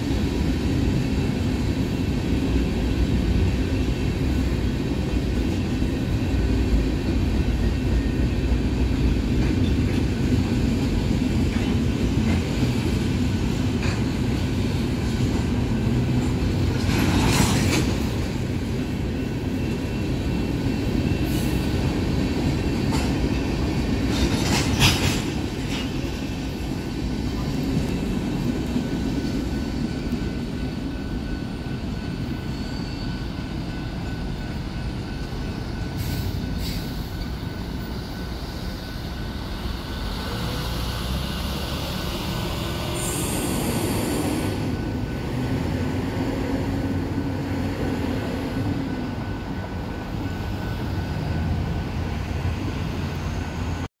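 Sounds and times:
train wheels rumbling on track: 0:00.0 - 0:53.9
high wheel squeals: 0:30.7 - 0:34.3.

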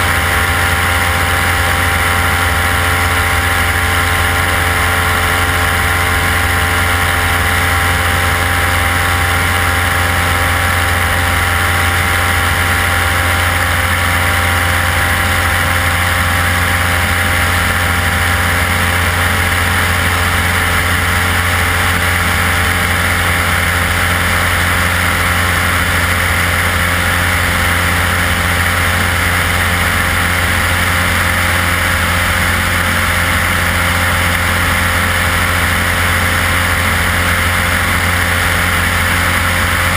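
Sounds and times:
propeller aircraft engine drone: 0:00.0 - 0:39.9.

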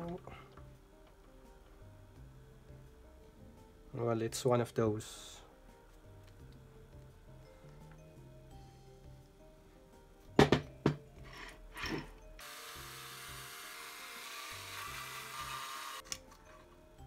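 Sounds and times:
soft background music: 0:00.0 - 0:17.0
cordless drill running: 0:12.4 - 0:16.0.

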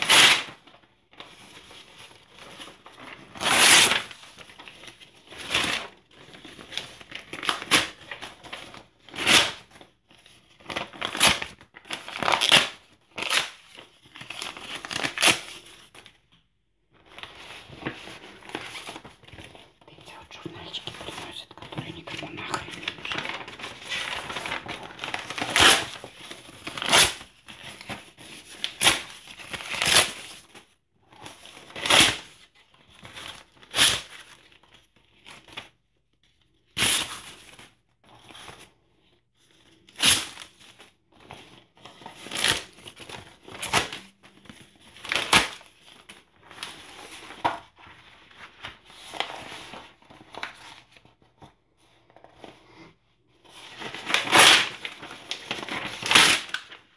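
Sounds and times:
paper rustling: 0:16.9 - 0:32.1, 0:39.4 - 0:52.7, 0:53.4 - 0:56.9
paper tearing: 0:22.5 - 0:27.8, 0:53.8 - 0:56.8.

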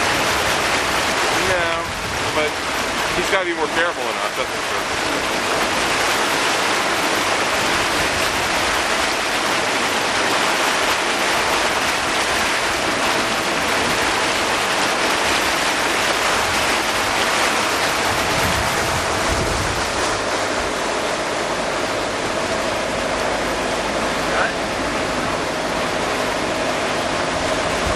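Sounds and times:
water rushing past motorboat: 0:00.0 - 0:27.9
wind rushing: 0:17.9 - 0:20.8.

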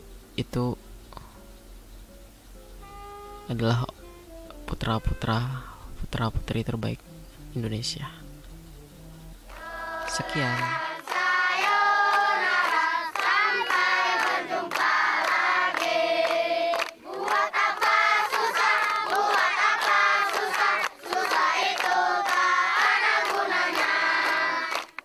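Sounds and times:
children singing in unison: 0:09.5 - 0:25.0.

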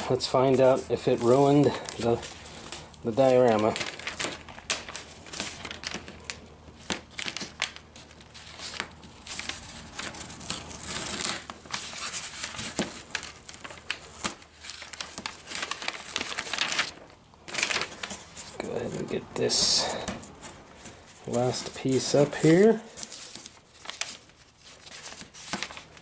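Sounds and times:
newspaper crinkling and rustling: 0:00.0 - 0:26.0
masking tape peeling: 0:00.4 - 0:19.1.

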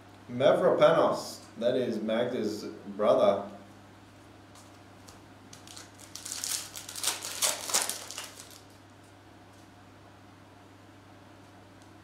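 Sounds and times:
card pack wrapper crinkling: 0:04.6 - 0:08.8.

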